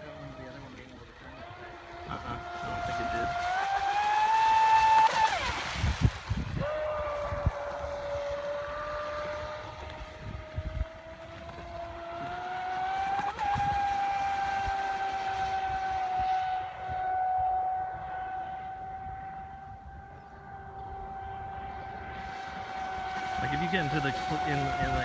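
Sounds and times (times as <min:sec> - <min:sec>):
electric motor whining: 0:00.0 - 0:05.8, 0:06.6 - 0:25.0
wind thumping on microphone: 0:04.9 - 0:08.3, 0:09.0 - 0:12.4.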